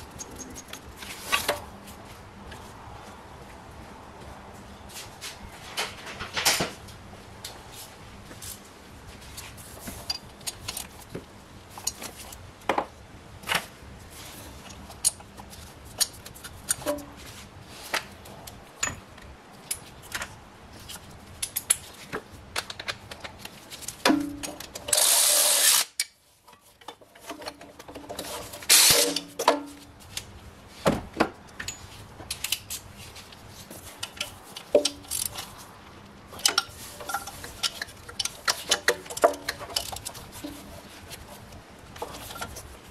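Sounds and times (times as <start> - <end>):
ratchet wrench clicking: 24.9 - 26.2.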